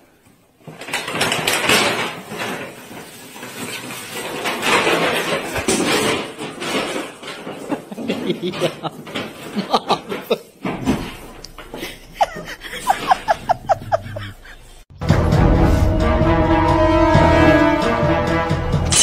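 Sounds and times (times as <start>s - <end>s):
person laughing: 7.7s - 10.6s, 11.7s - 14.8s
high-pitched giggles: 11.8s - 14.8s
background music: 14.9s - 19.0s.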